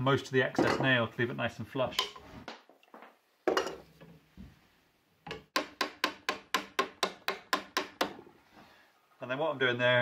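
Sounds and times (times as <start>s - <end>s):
hammer tapping on metal: 5.3s - 8.2s.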